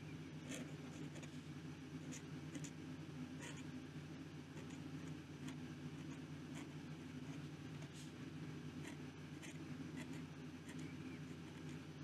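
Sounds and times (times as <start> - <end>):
steady low hum: 0.0 - 12.0
pen nib scratching on paper: 0.4 - 1.4, 2.0 - 2.8, 3.4 - 3.7, 4.6 - 8.1, 8.8 - 11.9.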